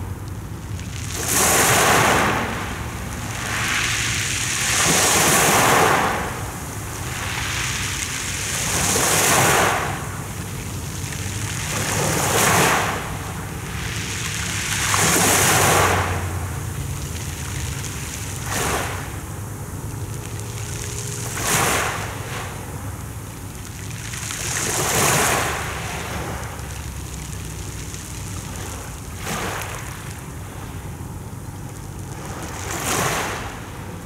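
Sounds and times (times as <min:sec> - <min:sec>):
waves washing over pebbles: 0:00.0 - 0:34.0.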